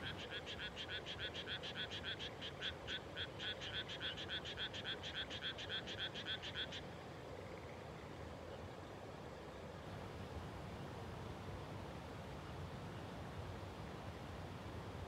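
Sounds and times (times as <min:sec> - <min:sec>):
frog croaking: 0:00.0 - 0:06.8.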